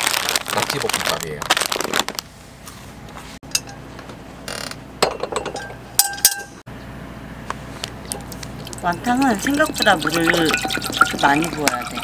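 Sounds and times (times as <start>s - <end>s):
pots and utensils clinking: 5.0s - 6.6s, 8.7s - 12.0s.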